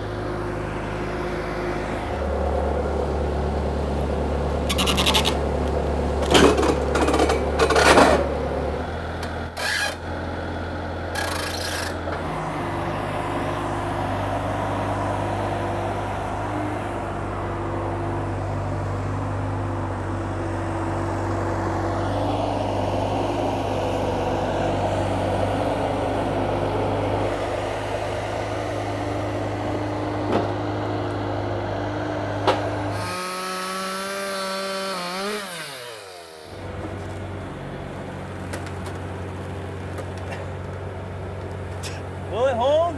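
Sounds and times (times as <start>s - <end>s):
loader engine running: 0.0s - 42.9s
clanks and knocks: 6.2s - 8.3s.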